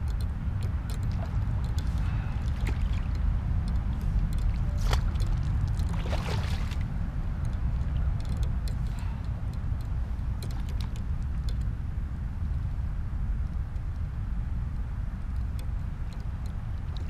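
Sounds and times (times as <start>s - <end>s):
wind rumble on microphone: 0.0s - 17.0s
fish thrashing and splashing: 4.4s - 6.8s.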